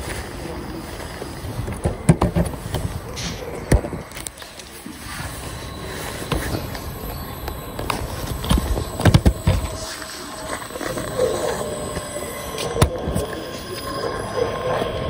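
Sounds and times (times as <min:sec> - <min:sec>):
train brake squeal: 0:05.0 - 0:10.7.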